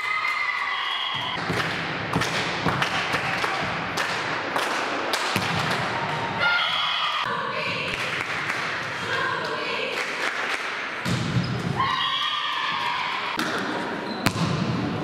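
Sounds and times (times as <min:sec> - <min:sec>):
sports hall noise: 0:00.0 - 0:15.0
volleyball thumps: 0:05.3 - 0:06.0, 0:11.0 - 0:11.8, 0:13.4 - 0:14.8.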